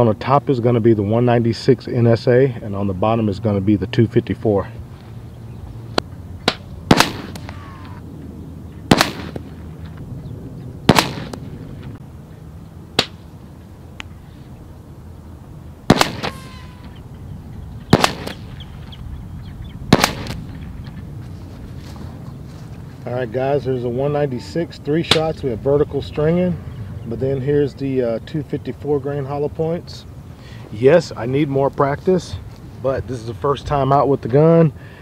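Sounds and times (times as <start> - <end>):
air pistol shots: 6.4 - 7.7, 8.9 - 9.5, 10.9 - 11.4, 13.0 - 13.2, 15.9 - 17.0, 17.9 - 18.6, 19.9 - 20.4.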